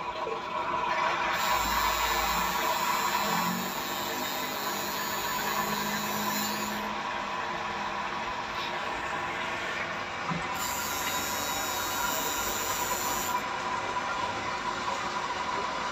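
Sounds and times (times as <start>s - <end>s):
tattoo machine running: 1.3s - 7.0s, 10.6s - 13.5s.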